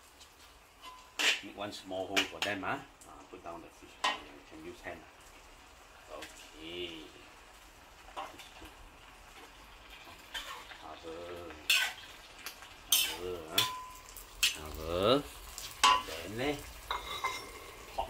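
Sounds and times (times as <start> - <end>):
light sizzle: 0.0 - 18.0
metal spatula scraping a wok: 0.4 - 1.6, 8.1 - 10.8, 11.5 - 14.6, 15.6 - 18.0.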